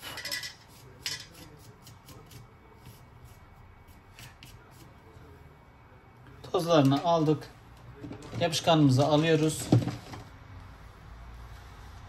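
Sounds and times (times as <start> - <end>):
tools scraping and tapping: 0.0 - 3.0.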